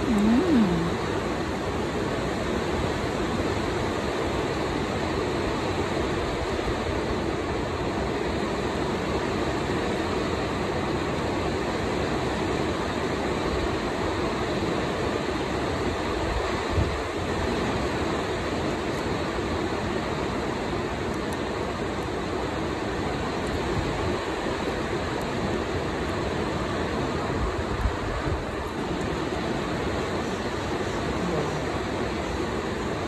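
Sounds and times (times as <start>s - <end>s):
person humming: 0.0s - 1.0s.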